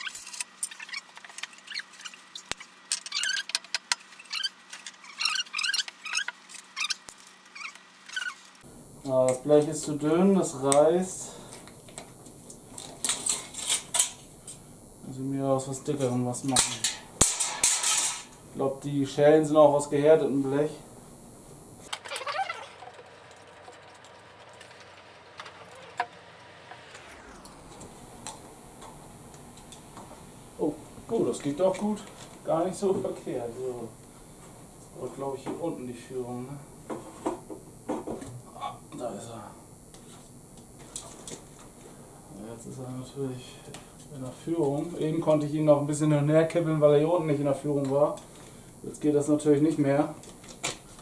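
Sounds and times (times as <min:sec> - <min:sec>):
aluminium sheet crinkling and scraping: 0:00.0 - 0:08.6, 0:21.9 - 0:26.2.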